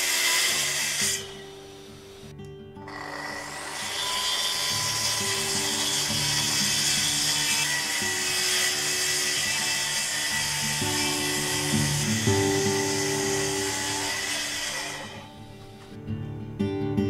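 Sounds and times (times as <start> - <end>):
track saw cutting wood: 0.0 - 15.9
background music: 0.0 - 17.0.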